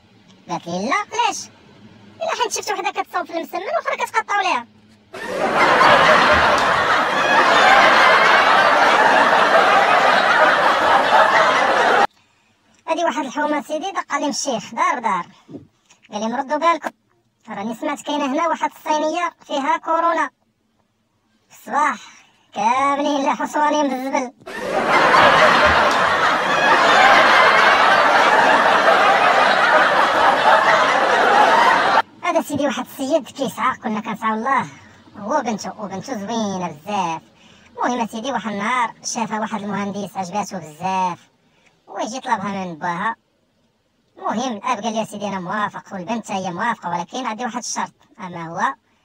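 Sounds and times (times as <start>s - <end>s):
laugh track crowd laughing: 5.2s - 12.1s, 24.5s - 32.1s.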